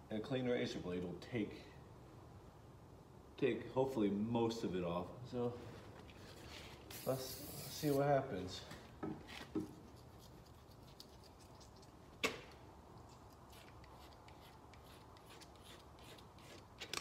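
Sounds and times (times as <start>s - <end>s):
razor blade scraping glass: 13.1s - 17.0s.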